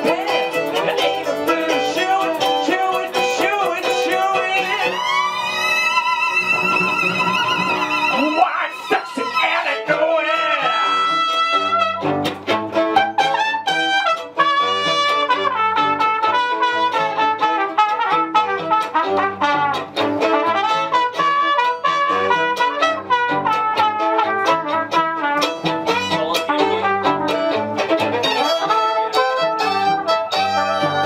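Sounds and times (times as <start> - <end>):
steady quick beat: 0.0 - 5.0
plucked cello bass line: 0.0 - 31.0
trumpet melody: 0.0 - 31.0.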